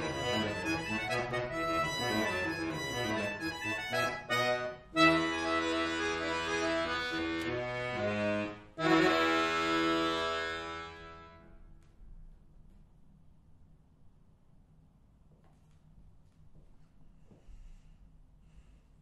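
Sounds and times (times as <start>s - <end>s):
button accordion playing: 0.0s - 11.5s.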